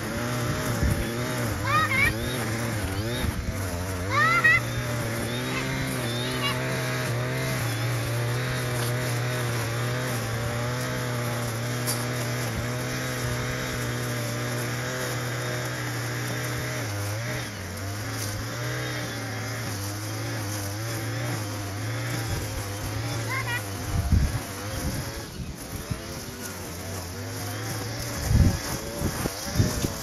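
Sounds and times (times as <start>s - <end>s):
brush cutter engine running: 0.0s - 30.0s.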